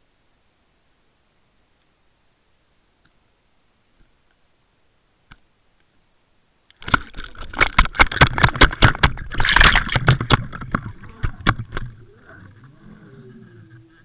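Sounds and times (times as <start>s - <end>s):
churning water underwater: 6.8s - 14.0s.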